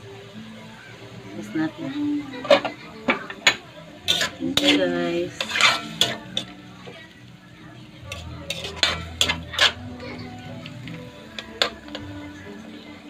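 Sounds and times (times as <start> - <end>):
light sizzle: 0.0 - 13.0
spatula scraping metal wok: 4.0 - 7.1, 8.0 - 12.3.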